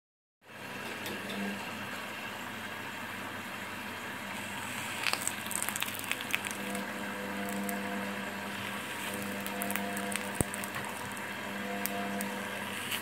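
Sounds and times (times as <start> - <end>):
hot knife sizzling through plastic: 4.3 - 13.0.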